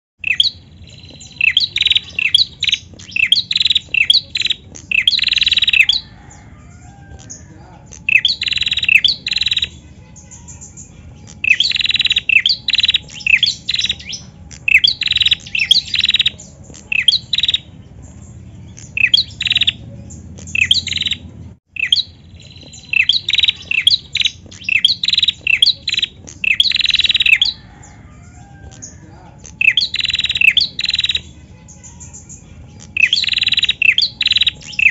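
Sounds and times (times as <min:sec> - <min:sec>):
bird chirping sharply: 0:00.2 - 0:34.9.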